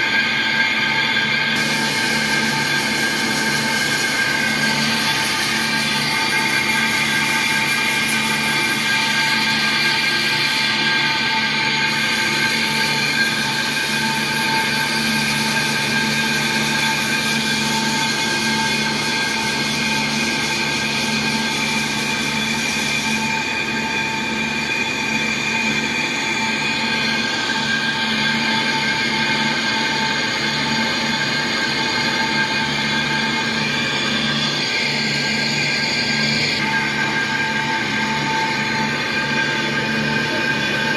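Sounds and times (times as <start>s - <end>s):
lathe machine whine: 0.0s - 40.9s
tool bit scraping metal: 1.6s - 11.1s.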